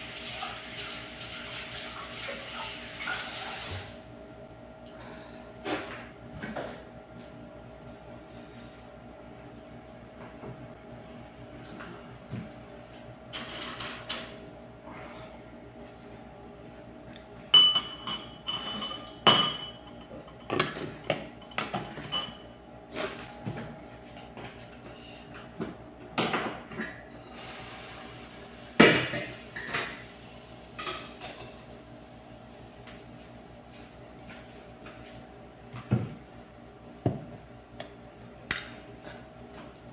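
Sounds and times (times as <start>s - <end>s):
steady low hum: 3.9s - 39.9s
dishes clattering: 17.6s - 22.5s.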